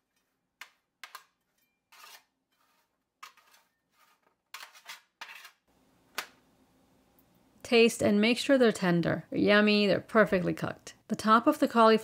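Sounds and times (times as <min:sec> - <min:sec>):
spatula scraping metal pan: 0:01.0 - 0:05.7.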